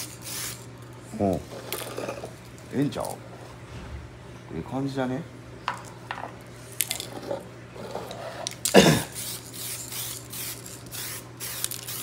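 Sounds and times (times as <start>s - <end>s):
aerosol spray can hissing: 9.1s - 12.0s.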